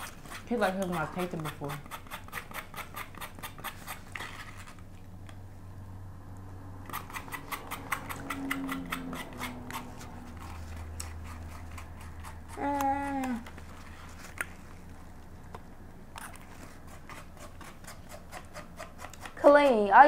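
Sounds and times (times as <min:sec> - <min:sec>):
spoon scraping a cup: 0:06.9 - 0:12.6.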